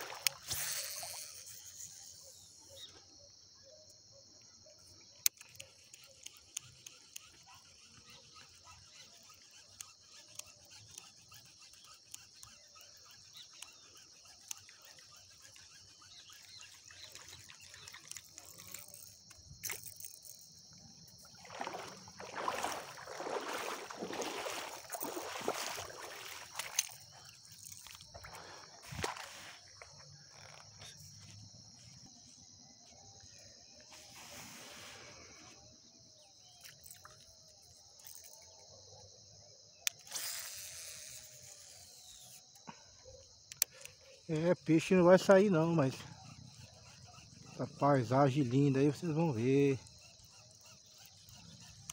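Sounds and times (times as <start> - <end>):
insects chirring: 0.0 - 51.9
sharp clicks: 43.5 - 44.0.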